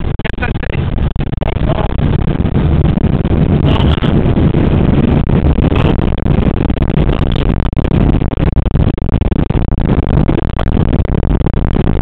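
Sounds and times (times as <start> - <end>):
jet engines roaring: 0.0 - 8.4.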